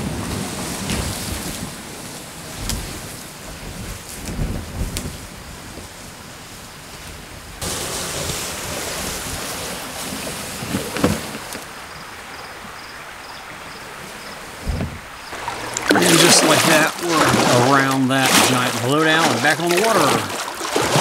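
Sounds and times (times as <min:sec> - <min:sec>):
kayak scraping over grass: 0:06.6 - 0:12.0, 0:13.9 - 0:21.0
low thumps: 0:14.6 - 0:17.6.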